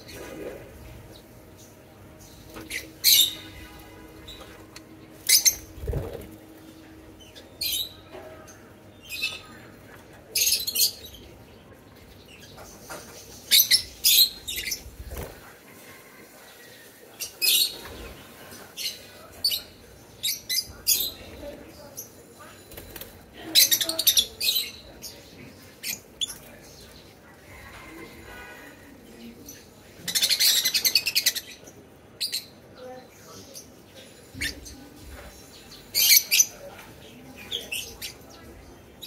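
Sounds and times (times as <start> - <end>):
lovebirds chirping: 0.0 - 15.8
wings flapping: 5.6 - 6.5, 14.9 - 15.6.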